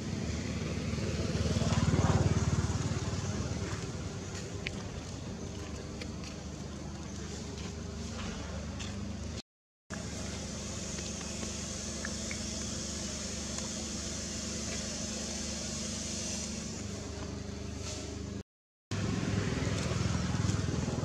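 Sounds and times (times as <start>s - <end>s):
even hiss: 10.0s - 17.1s.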